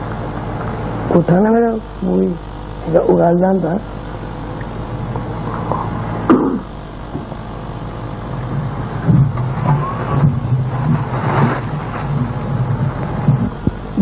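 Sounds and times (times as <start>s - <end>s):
low electrical hum: 0.0s - 14.0s
microphone handling and rustling: 4.1s - 14.0s.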